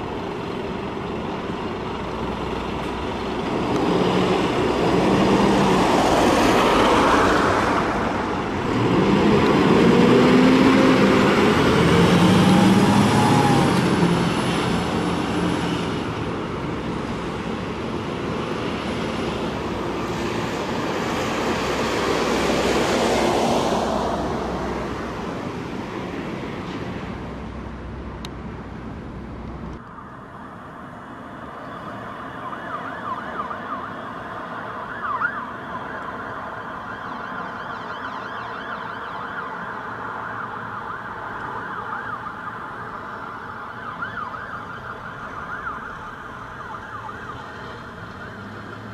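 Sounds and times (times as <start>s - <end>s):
diesel engine revving: 0.0s - 29.8s
siren: 31.5s - 48.9s
warbling siren: 31.7s - 48.9s.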